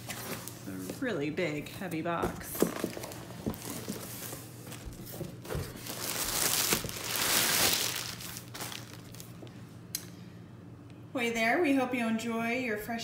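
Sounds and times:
plastic liner crinkling: 2.6 - 9.4.

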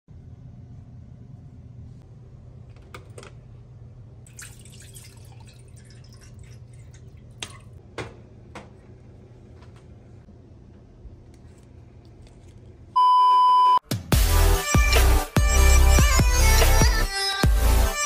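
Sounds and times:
steady low hum: 0.1 - 4.8
water pouring into saucepan: 4.3 - 7.8.

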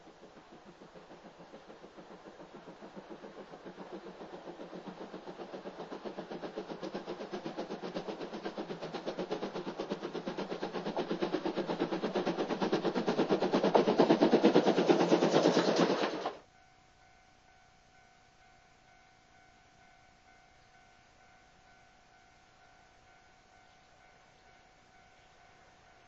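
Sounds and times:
steam locomotive chuffing: 0.0 - 16.4.

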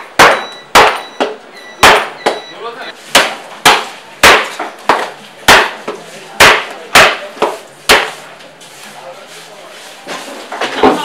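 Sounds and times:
cleaver chopping on wooden block: 0.2 - 1.0, 3.1 - 5.8, 6.4 - 8.2.

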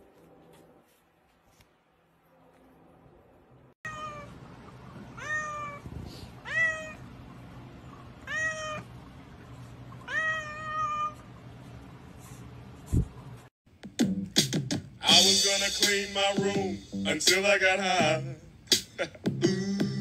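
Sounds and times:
cat meowing: 3.9 - 4.3, 5.1 - 7.0, 8.2 - 8.9, 10.0 - 11.3.

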